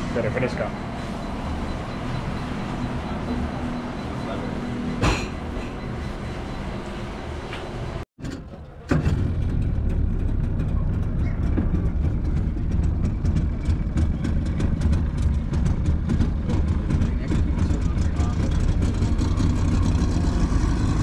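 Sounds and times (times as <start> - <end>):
busy street hubbub: 0.0 - 8.0, 10.4 - 21.0
motorboat engine rumbling: 8.3 - 21.0.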